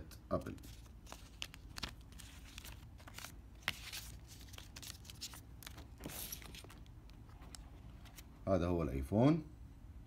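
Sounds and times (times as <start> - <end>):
paper rustling and scraping: 0.5 - 8.2.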